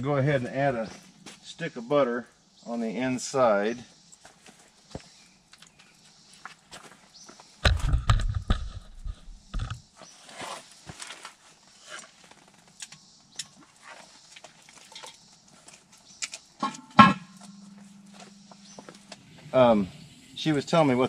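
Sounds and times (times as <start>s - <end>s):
low rustling handling noise: 13.6s - 19.5s
metal lid clanking: 16.6s - 18.0s.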